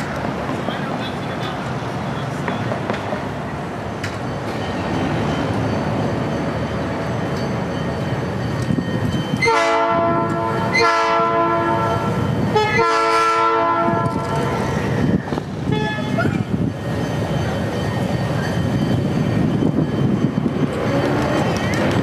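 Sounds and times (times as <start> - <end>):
diesel locomotive engine rumble: 0.0 - 22.0
locomotive air horn blasts: 9.4 - 14.2.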